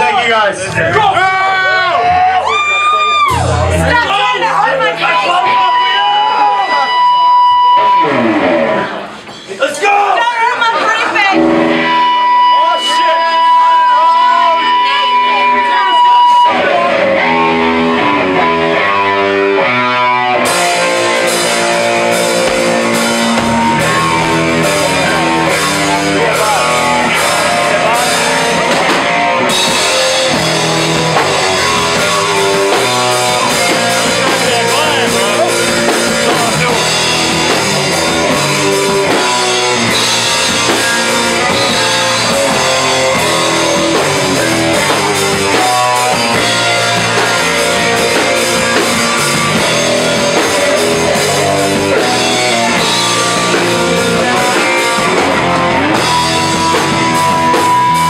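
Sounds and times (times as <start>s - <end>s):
electric guitar riff: 0.0s - 9.3s, 11.2s - 58.0s
rock drums: 0.0s - 58.0s.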